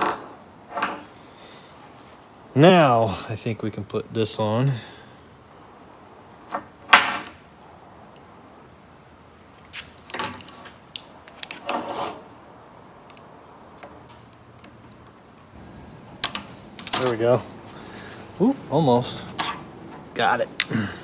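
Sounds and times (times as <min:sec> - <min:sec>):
metal parts clanking and scraping: 0:10.0 - 0:10.8, 0:16.2 - 0:17.4.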